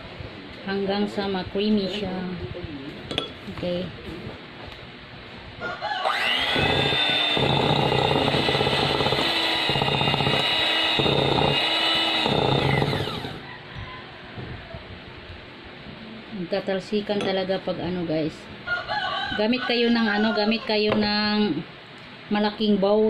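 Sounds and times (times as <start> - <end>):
electric hand mixer whining: 6.0 - 13.4.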